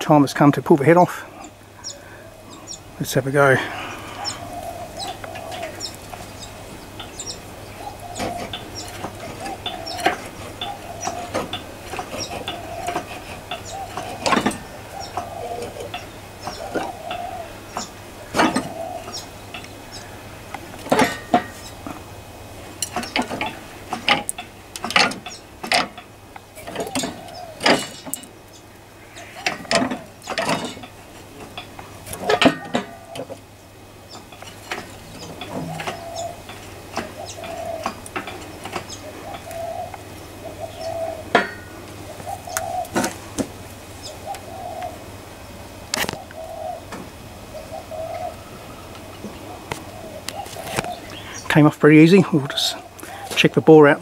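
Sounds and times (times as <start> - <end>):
metal clanks: 7.0 - 19.7, 20.5 - 22.0, 22.7 - 28.3, 29.2 - 33.4, 34.1 - 39.5, 41.3 - 41.8.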